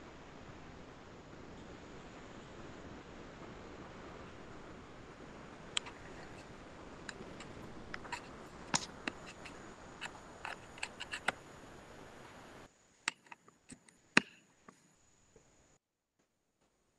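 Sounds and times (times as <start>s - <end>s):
steady hiss of call audio: 0.0s - 15.8s
computer mouse clicks: 5.8s - 11.4s, 13.1s - 14.8s.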